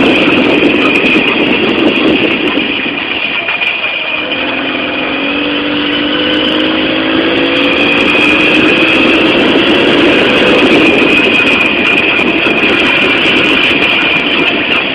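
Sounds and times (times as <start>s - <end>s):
moped engine accelerating: 0.0s - 14.9s.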